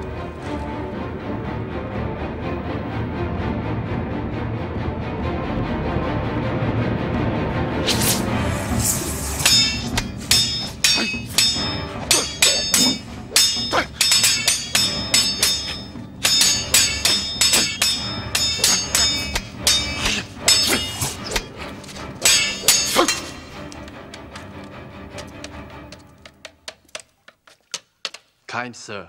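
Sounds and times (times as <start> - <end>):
swords clashing: 9.2 - 24.4.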